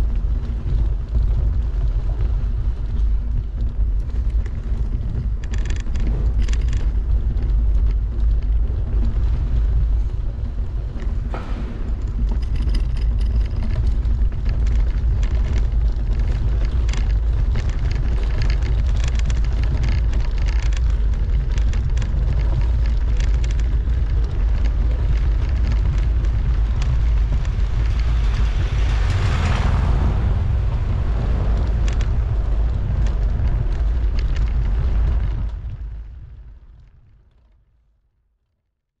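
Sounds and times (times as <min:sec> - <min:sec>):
bicycle rolling over cobblestones: 0:00.0 - 0:37.7
rattling clicks of bike frame: 0:03.6 - 0:09.2, 0:10.4 - 0:29.5, 0:31.5 - 0:35.8.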